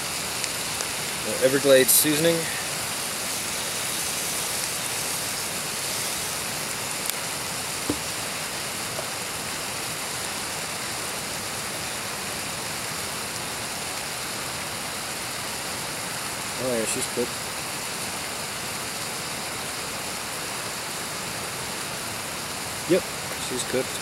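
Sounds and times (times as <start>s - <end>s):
steady hissing: 0.0s - 24.0s
shaker set down on wooden table: 7.9s - 8.1s.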